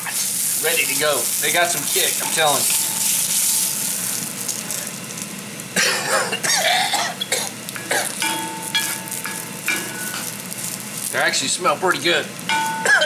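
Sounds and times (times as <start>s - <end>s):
wooden spoon stirring: 0.0s - 5.3s, 8.1s - 12.9s
peppers sizzling in hot oil: 0.0s - 13.0s
person coughing: 5.8s - 8.2s.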